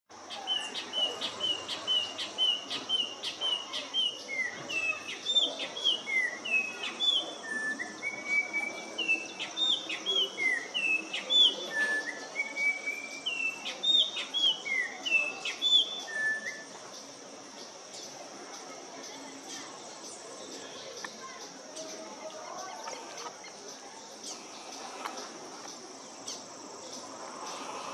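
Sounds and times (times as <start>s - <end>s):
bird singing whistles: 4.0s - 16.7s.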